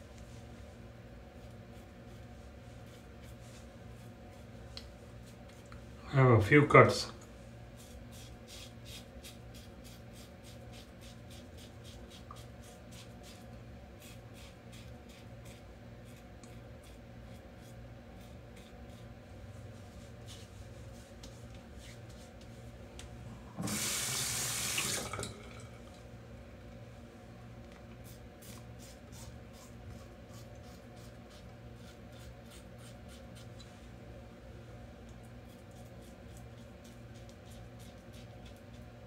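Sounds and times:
water tap running: 0:23.6 - 0:25.8.

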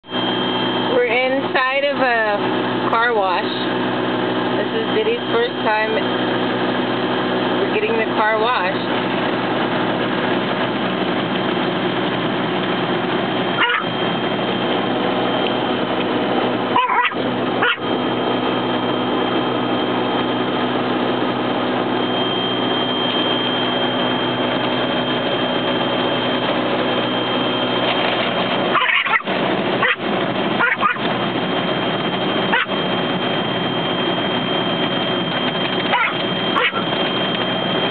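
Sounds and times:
car wash brushes and machinery: 0:00.0 - 0:37.9
small dog barking and yipping: 0:13.6 - 0:13.9, 0:16.7 - 0:17.9, 0:28.7 - 0:30.0, 0:30.6 - 0:31.1, 0:32.5 - 0:32.8, 0:35.9 - 0:36.9.

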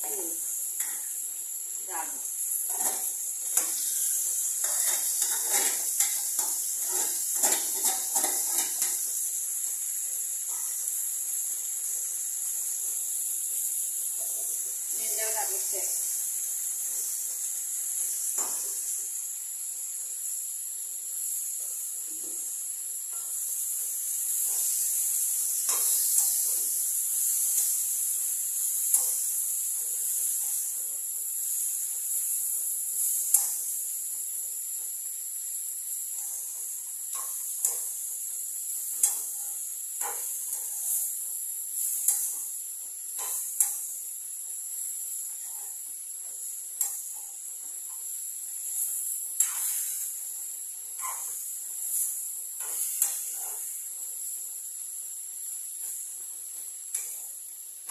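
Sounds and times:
vegetables sizzling in oil: 0:00.0 - 0:57.9
metal spoon scraping and tapping pan: 0:02.7 - 0:04.0, 0:04.6 - 0:09.1, 0:25.6 - 0:26.7, 0:38.9 - 0:41.1, 0:43.2 - 0:43.8, 0:46.8 - 0:47.2, 0:49.4 - 0:50.0.

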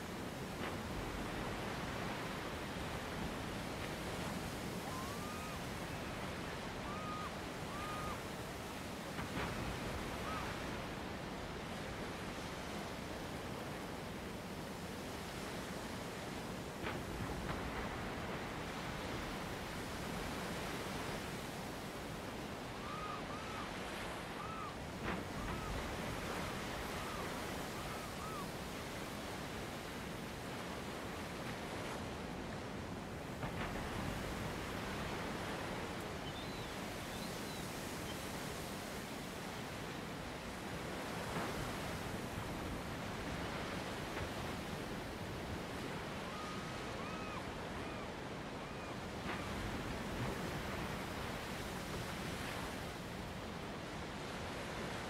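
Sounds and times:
sea surf: 0:00.0 - 0:55.0
wind: 0:00.0 - 0:55.0
whistled bird calls: 0:04.8 - 0:06.1, 0:06.8 - 0:08.3, 0:22.8 - 0:24.8, 0:25.4 - 0:25.8, 0:26.9 - 0:28.5, 0:36.2 - 0:38.3, 0:46.3 - 0:48.9.

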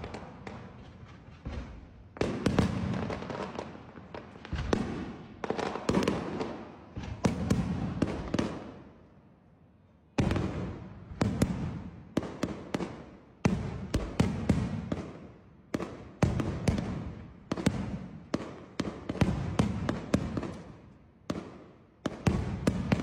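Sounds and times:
fireworks crackling: 0:00.0 - 0:01.3
fireworks bursting: 0:00.0 - 0:08.8, 0:10.2 - 0:23.0.

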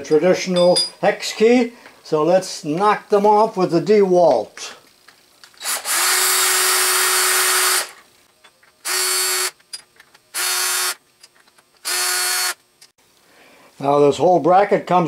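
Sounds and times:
cordless drill motor whine: 0:05.5 - 0:08.0, 0:08.8 - 0:09.6, 0:10.3 - 0:11.0, 0:11.8 - 0:12.6.

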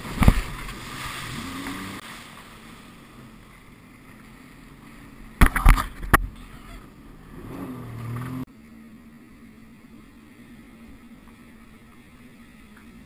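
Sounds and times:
hull slamming into water: 0:00.0 - 0:02.4
muffled jet ski engine: 0:00.0 - 0:13.0.

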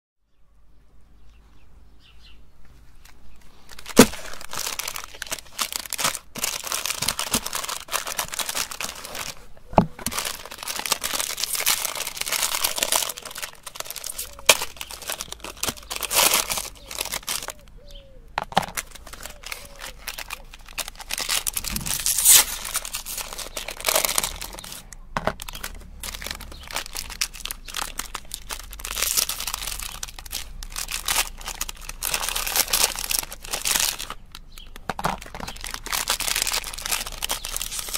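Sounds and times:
wrapper crinkling and tearing: 0:03.4 - 0:37.9
sharp wrapper snaps: 0:10.0 - 0:17.8, 0:18.8 - 0:37.9.

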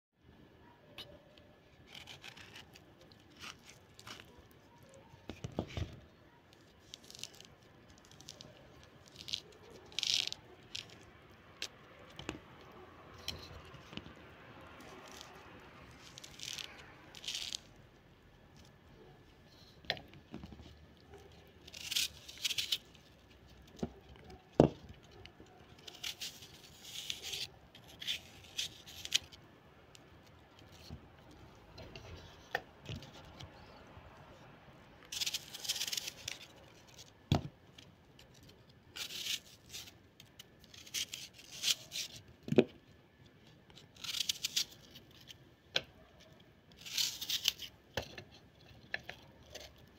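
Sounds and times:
knife scraping and tearing fruit: 0:01.0 - 0:49.9.

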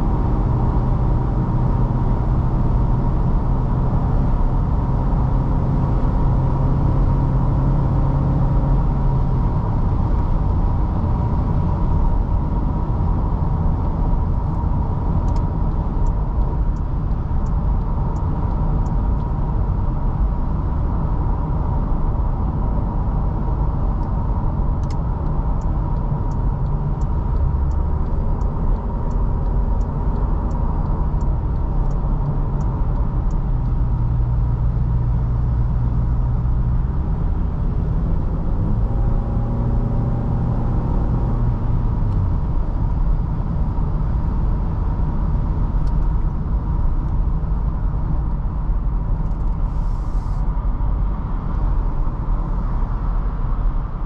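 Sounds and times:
car engine and road noise: 0:00.0 - 0:54.0
turn signal ticking: 0:14.0 - 0:19.5, 0:24.0 - 0:34.9.

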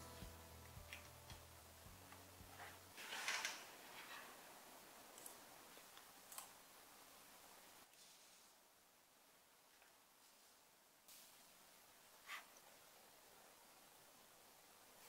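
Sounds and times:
faint ticking beat: 0:00.0 - 0:02.8
soft rustle: 0:07.9 - 0:08.6.

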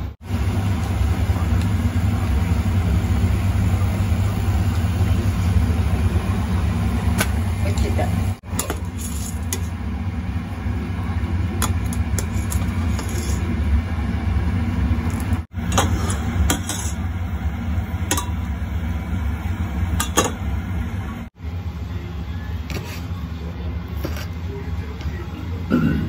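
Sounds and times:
low kitchen hum: 0:00.0 - 0:26.0.

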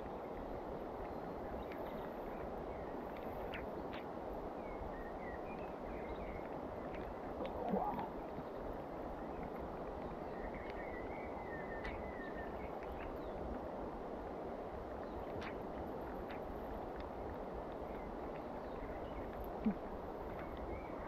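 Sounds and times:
rain: 0:00.0 - 0:21.0
small birds chirping: 0:00.4 - 0:13.6, 0:17.6 - 0:21.0
river flowing: 0:07.1 - 0:08.7.

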